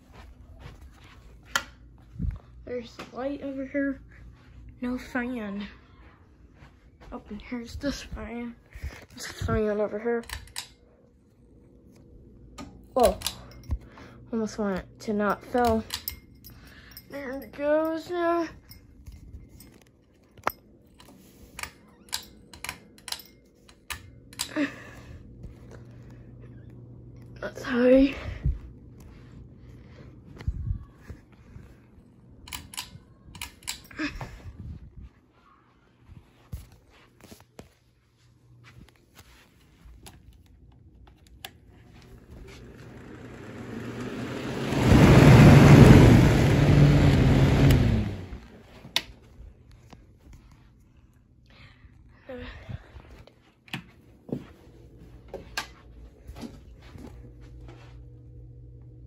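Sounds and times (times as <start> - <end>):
fan motor hum: 0.0 - 59.0
pull-chain clicking: 20.9 - 24.6.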